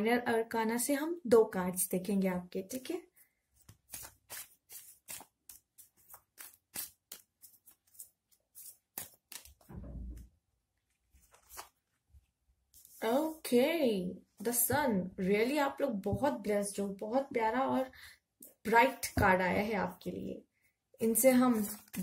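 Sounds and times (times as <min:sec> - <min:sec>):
cards being shuffled: 0:03.6 - 0:09.7, 0:11.2 - 0:12.0
short low thump: 0:09.7 - 0:10.3.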